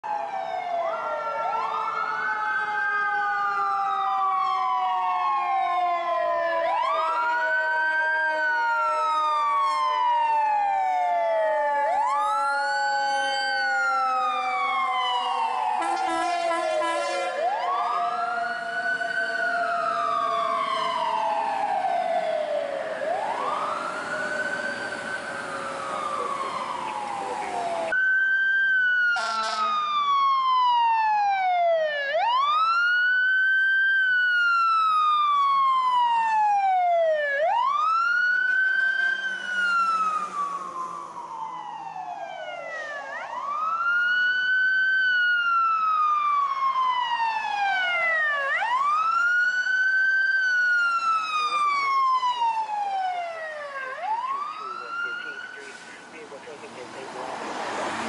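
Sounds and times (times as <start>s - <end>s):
emergency vehicle sirens wailing: 0.0s - 58.0s
short siren blast: 12.8s - 25.2s, 29.0s - 30.7s.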